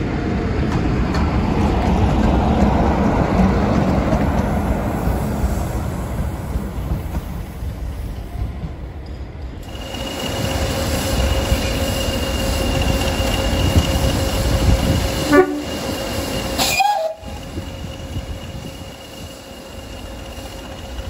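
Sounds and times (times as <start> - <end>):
diesel locomotive rumble and whine: 0.0 - 21.0
train horn blast: 15.2 - 15.8, 16.6 - 17.4.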